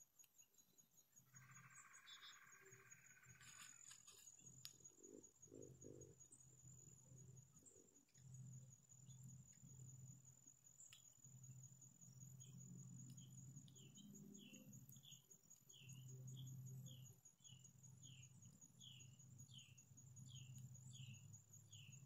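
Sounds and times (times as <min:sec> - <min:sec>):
insect pulsing trill: 0:00.1 - 0:22.0
bird chirping: 0:01.4 - 0:07.0, 0:12.1 - 0:22.0.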